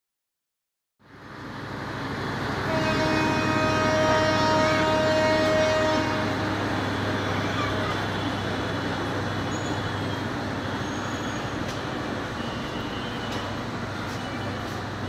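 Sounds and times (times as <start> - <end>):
diesel locomotive running: 1.0 - 15.0
train horn steady note: 2.6 - 6.7.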